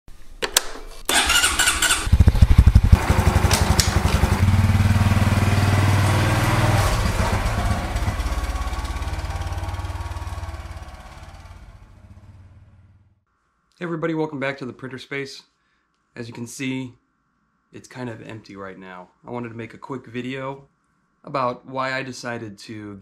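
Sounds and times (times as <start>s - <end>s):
motorcycle starter whirring: 1.1s - 12.3s
motorcycle engine running: 1.1s - 13.2s.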